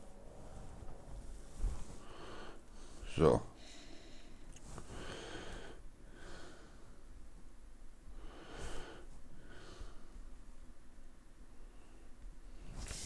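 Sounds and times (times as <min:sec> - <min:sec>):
person breathing faintly: 0:00.0 - 0:07.1, 0:08.1 - 0:10.4.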